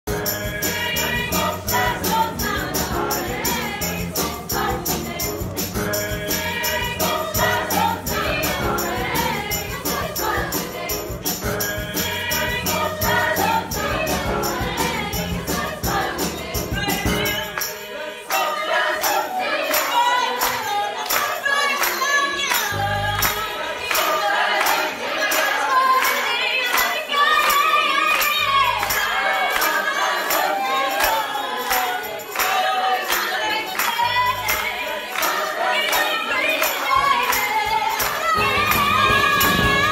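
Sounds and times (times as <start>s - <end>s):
percussive beat: 0.1s - 18.0s, 34.0s - 39.9s
choir singing: 0.1s - 39.9s
soloists singing into microphones: 0.1s - 39.9s.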